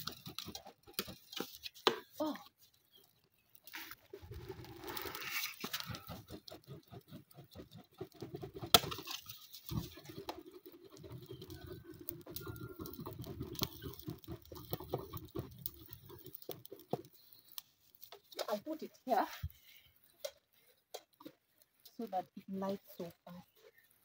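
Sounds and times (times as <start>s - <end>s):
plastic plate fanning air: 3.8s - 18.4s.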